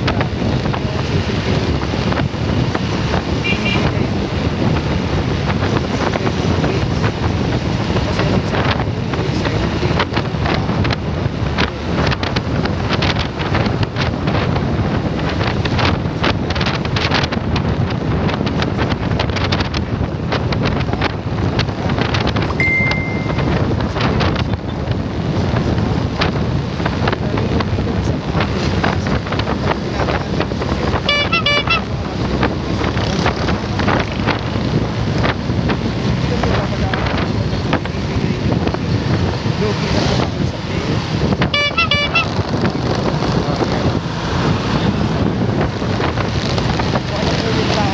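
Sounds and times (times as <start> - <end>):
motorcycle engine running: 0.0 - 44.1
traffic: 0.0 - 47.9
wind buffeting microphone: 0.0 - 47.9
short horn toots: 31.0 - 32.0, 41.5 - 42.4.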